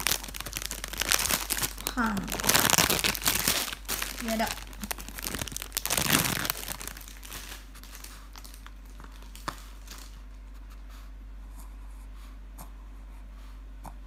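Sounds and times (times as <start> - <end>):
faint crinkling and clicks: 0.0 - 10.8
steady low hum: 0.0 - 14.0.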